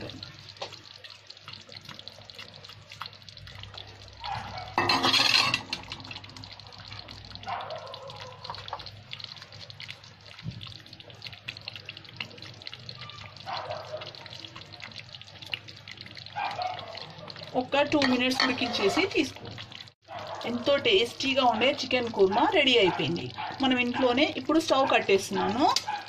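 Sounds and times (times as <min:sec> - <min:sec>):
gravy bubbling in a pot: 0:00.0 - 0:26.0.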